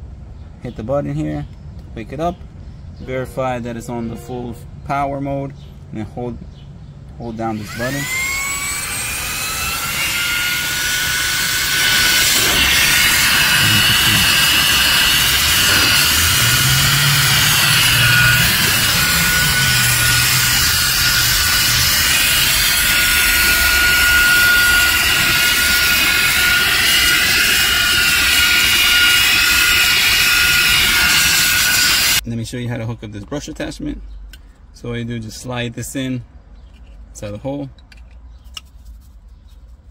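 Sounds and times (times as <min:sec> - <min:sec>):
handheld vacuum whining: 0:07.5 - 0:32.2.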